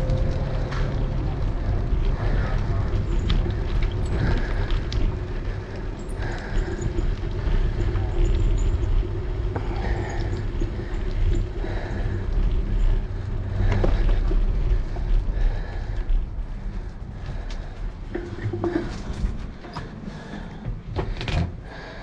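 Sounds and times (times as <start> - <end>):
wind buffeting microphone: 0.0 - 21.9
bicycle tyre noise on pavement: 0.0 - 22.0.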